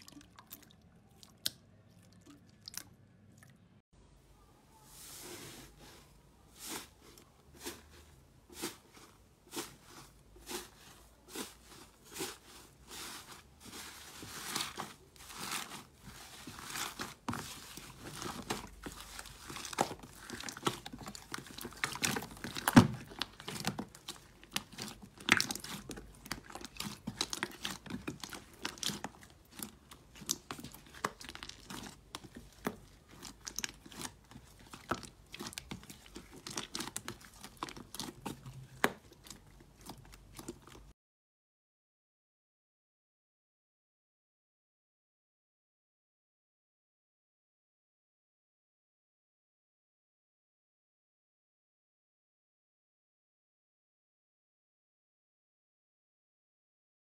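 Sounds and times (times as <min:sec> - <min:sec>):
slime crackling and squelching: 0:04.8 - 0:40.9.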